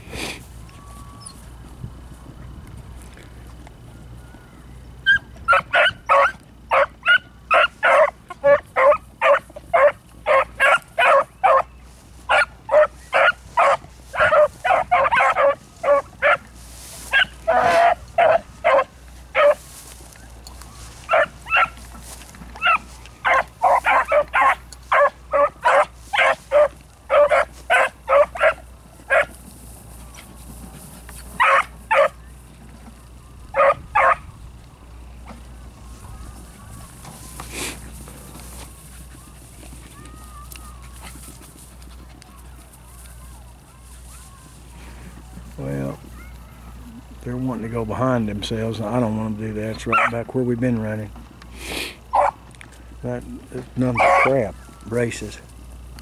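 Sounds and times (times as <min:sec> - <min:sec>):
pack of beagles barking: 0:05.0 - 0:19.7, 0:20.7 - 0:29.4, 0:30.0 - 0:32.3, 0:33.5 - 0:34.3, 0:49.8 - 0:50.3, 0:52.1 - 0:52.4, 0:53.8 - 0:54.8.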